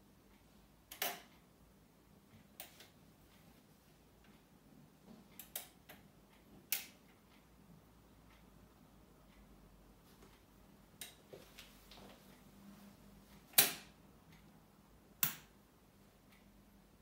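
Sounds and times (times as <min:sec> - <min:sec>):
tonearm light clicks: 0:00.3 - 0:01.5, 0:05.3 - 0:07.5, 0:13.4 - 0:15.7.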